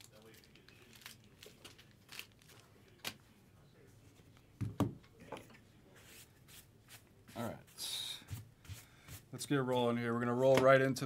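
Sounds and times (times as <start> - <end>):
knocks on tabletop: 4.6 - 5.0.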